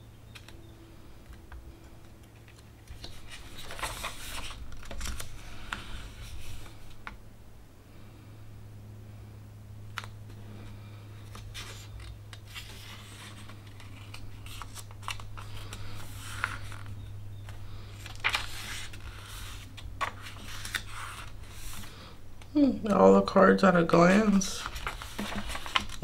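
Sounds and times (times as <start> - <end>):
steady low hum: 0.0 - 26.0
paper pages rustling and flicking: 1.6 - 7.0, 11.2 - 22.0, 24.1 - 26.0.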